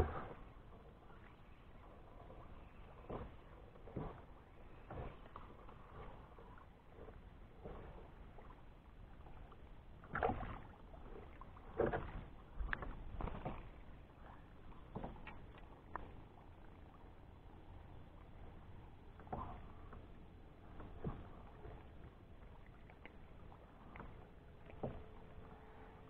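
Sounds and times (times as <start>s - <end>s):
faint water lapping: 0.0s - 26.0s
splashes and knocks on kayak: 2.7s - 16.8s, 19.1s - 25.4s.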